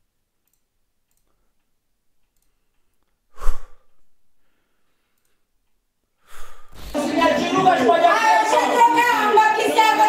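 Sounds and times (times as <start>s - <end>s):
faint breath: 2.4s - 5.5s, 6.2s - 6.8s.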